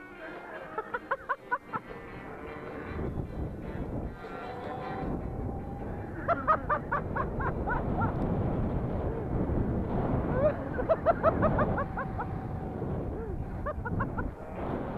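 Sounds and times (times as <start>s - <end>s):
wind: 0.0s - 14.9s
man laughing: 0.2s - 2.1s, 6.0s - 8.2s, 10.2s - 12.5s, 13.1s - 14.5s.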